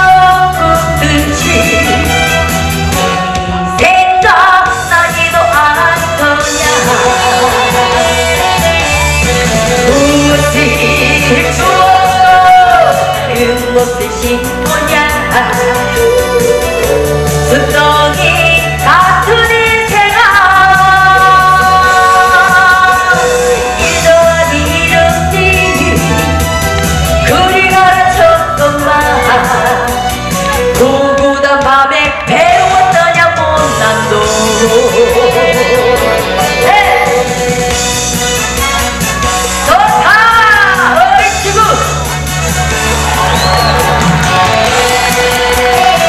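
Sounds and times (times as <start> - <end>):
woman singing into a microphone: 0.0 - 2.3, 3.7 - 8.9, 9.8 - 26.4, 27.2 - 37.6, 39.6 - 41.9
amplified instrumental accompaniment: 0.0 - 46.0.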